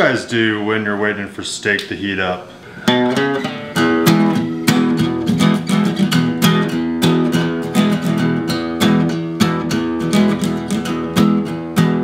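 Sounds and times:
acoustic guitar strumming: 2.8 - 12.0.

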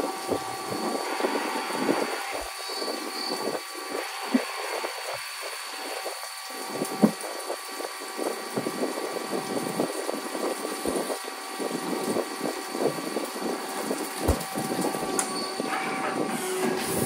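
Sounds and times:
lathe cutting noise: 0.0 - 6.5, 13.5 - 17.0
machine whine: 0.0 - 17.0.

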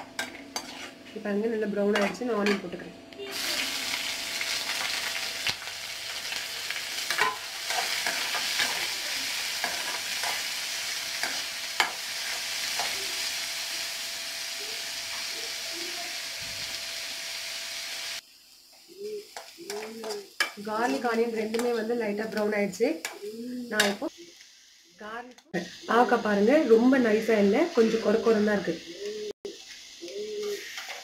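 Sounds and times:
spatula scraping pan: 0.0 - 1.2
onions sizzling in hot oil: 0.0 - 2.6, 3.2 - 31.0.

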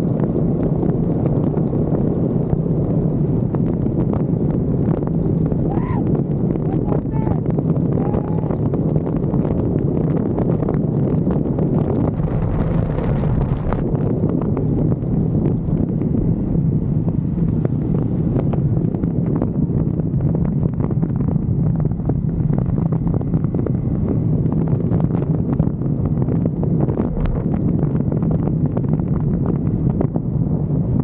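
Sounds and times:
wind noise on microphone: 0.0 - 31.0.

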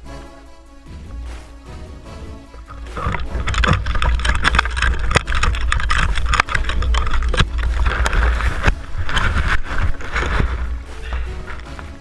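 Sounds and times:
grass swishing against camera: 2.5 - 12.0
handling noise: 2.5 - 12.0
wind rumble: 2.6 - 12.0.

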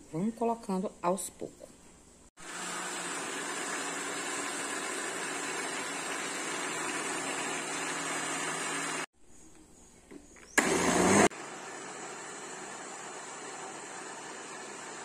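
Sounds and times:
blender motor running: 2.4 - 9.1, 10.6 - 15.0.

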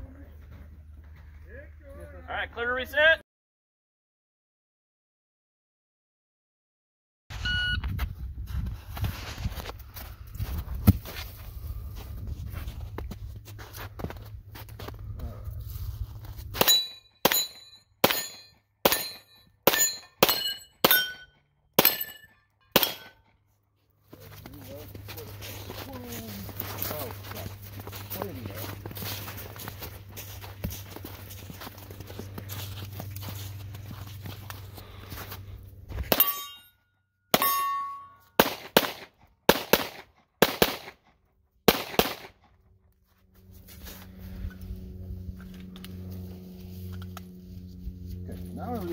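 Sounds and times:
wind rumbling on microphone: 7.7 - 13.6
metallic ring of steel targets: 16.5 - 23.3, 36.0 - 38.4
pistol shots: 16.6 - 21.2, 22.8 - 23.2, 38.4 - 41.0, 41.7 - 42.4.

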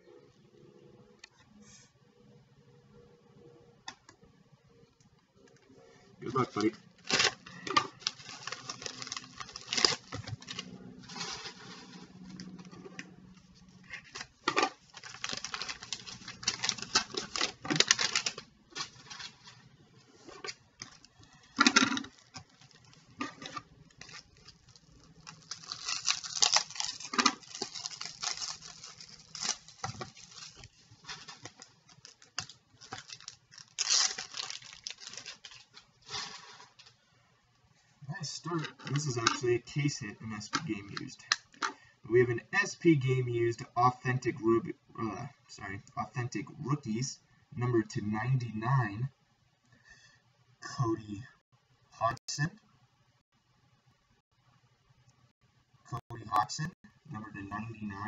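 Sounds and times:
cards in plastic holders rustling: 6.3 - 37.0
padded envelope tearing: 6.4 - 12.6, 14.0 - 19.4, 21.9 - 36.8.

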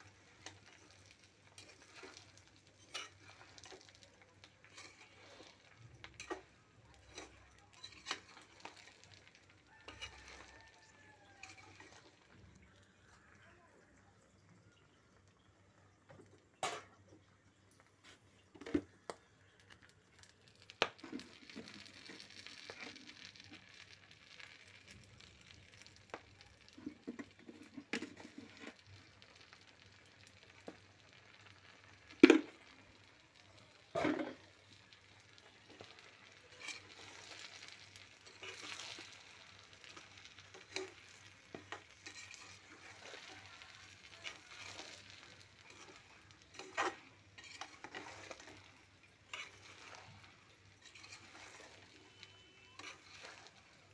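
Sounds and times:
spatula scraping a pan: 0.0 - 12.2, 26.7 - 28.8, 35.2 - 53.9
food sizzling in oil: 0.0 - 15.0, 15.6 - 53.9.

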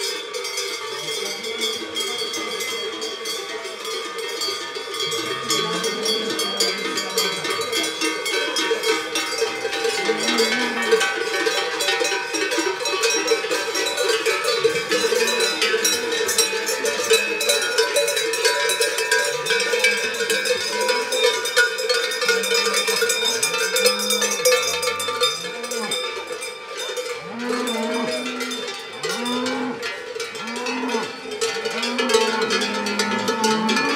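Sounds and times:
cowbells clanking: 0.0 - 33.9
cows mooing: 5.1 - 7.5, 10.0 - 11.0, 22.2 - 26.0, 27.2 - 33.9.

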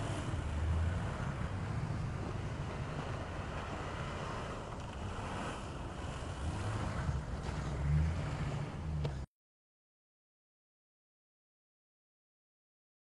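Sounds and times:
engine running under load: 0.0 - 9.3.

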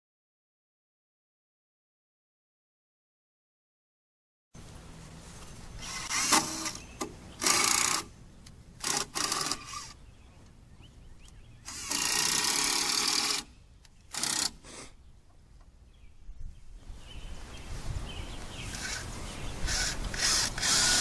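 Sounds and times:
power drill driving screws into wood: 5.8 - 8.1, 8.8 - 10.0, 11.7 - 13.5, 14.1 - 14.6, 19.6 - 21.0.

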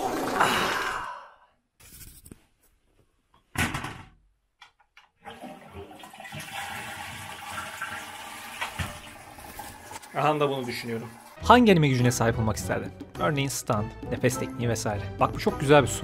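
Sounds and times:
toilet flushing water rush: 5.2 - 11.4.

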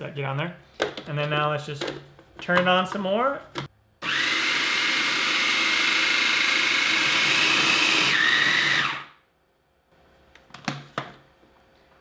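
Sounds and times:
food processor grinding: 4.0 - 9.2.

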